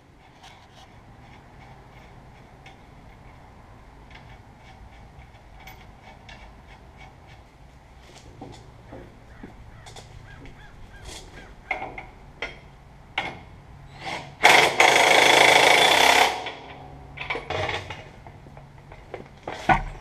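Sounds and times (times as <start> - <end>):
tool knocks and clicks: 17.2 - 20.0.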